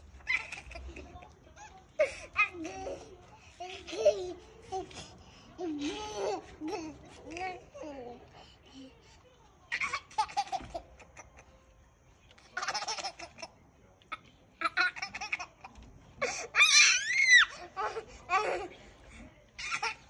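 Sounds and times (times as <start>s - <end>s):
toddler giggling: 2.0s - 7.2s.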